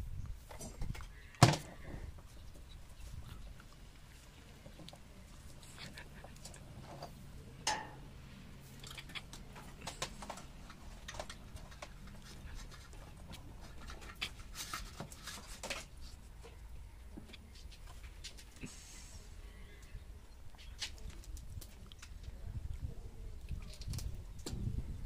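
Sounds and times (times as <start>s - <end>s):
hand tools clicking and knocking: 6.2s - 8.1s.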